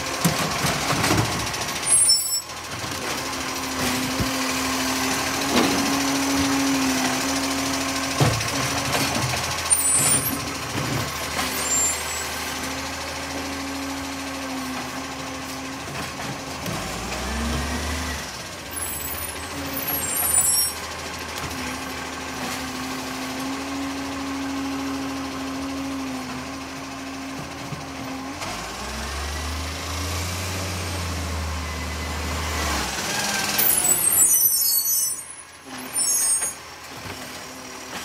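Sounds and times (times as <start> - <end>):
garbage truck diesel engine running: 0.0 - 38.0
short high squeaks: 1.8 - 2.5, 11.4 - 12.4, 18.8 - 20.8, 33.6 - 36.6.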